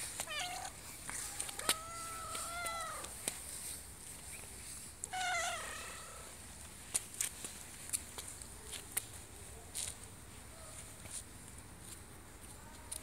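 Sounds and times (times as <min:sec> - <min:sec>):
cat meowing: 0:00.2 - 0:03.1, 0:05.1 - 0:06.3.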